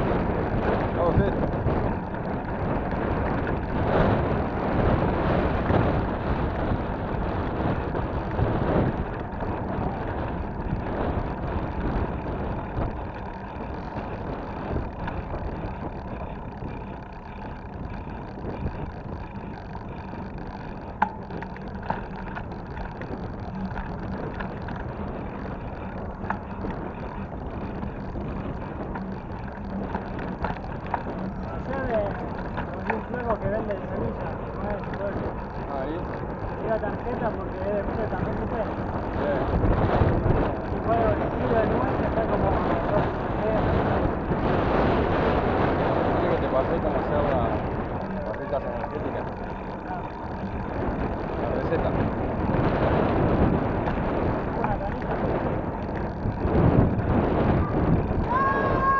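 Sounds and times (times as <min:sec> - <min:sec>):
bike tyres rumbling on pavement: 0:00.0 - 0:58.9
wind rushing over microphone: 0:00.0 - 0:58.9.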